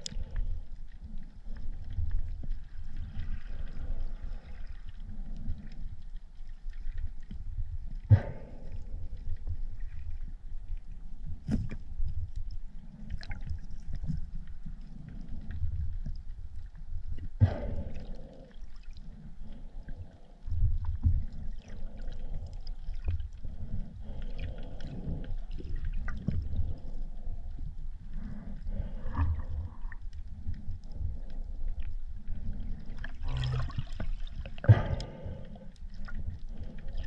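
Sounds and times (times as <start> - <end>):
clicks and knocks underwater: 0.0 - 18.2, 19.9 - 27.4, 28.7 - 37.0
underwater rumble of moving water: 0.0 - 37.0.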